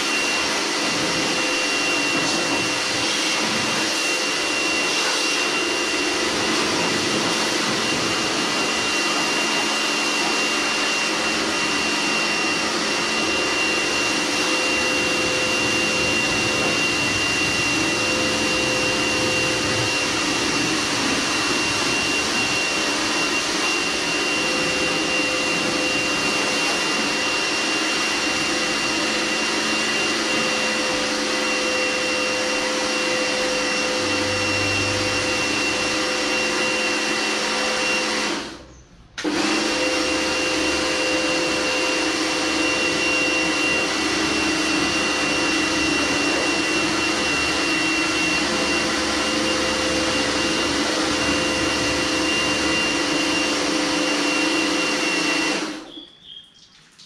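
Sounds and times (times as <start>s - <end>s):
pressure washer motor whining: 0.0s - 56.4s
water jet hissing: 0.1s - 38.3s.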